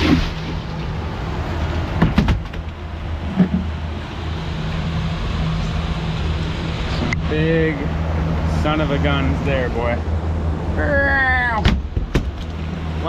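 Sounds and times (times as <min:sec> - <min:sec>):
outboard motor running: 0:00.0 - 0:13.0
water noise: 0:00.0 - 0:13.0
wind: 0:00.0 - 0:13.0
knocks: 0:02.0 - 0:03.7.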